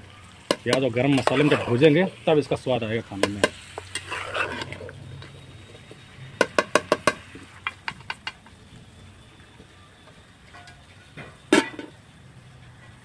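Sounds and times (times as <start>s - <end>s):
spoon knocking against pot: 6.4s - 7.2s.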